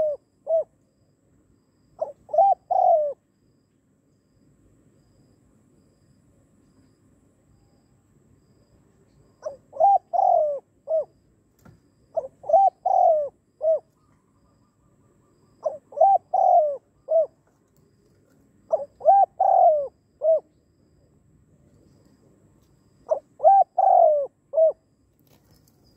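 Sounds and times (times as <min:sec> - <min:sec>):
dove cooing: 0:00.0 - 0:00.8, 0:02.0 - 0:03.2, 0:09.4 - 0:11.2, 0:12.1 - 0:17.5, 0:18.7 - 0:20.6, 0:23.0 - 0:24.9.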